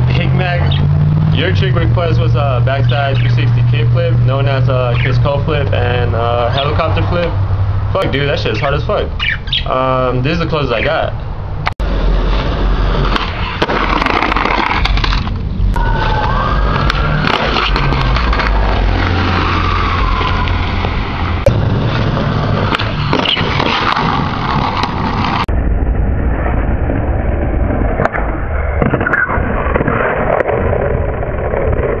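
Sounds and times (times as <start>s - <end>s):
skateboard wheels rolling: 11.8s - 25.5s, 26.3s - 32.0s
skateboard popping and landing: 12.3s - 15.4s, 16.2s - 25.4s.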